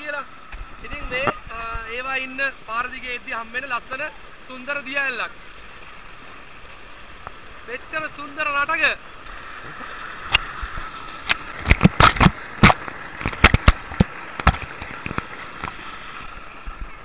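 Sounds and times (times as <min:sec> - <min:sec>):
water rushing over rocks: 0:00.0 - 0:17.0
splashes knocking against camera: 0:10.2 - 0:16.4.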